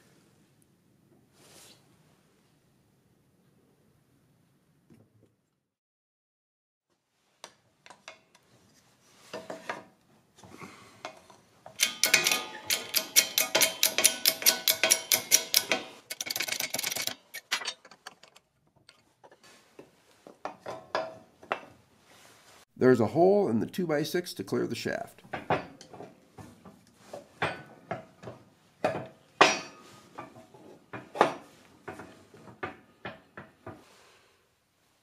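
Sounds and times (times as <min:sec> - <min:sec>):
knocks and clicks of handled parts: 0:11.0 - 0:21.8, 0:25.2 - 0:33.9
fast sharp metallic clicks: 0:11.8 - 0:17.6.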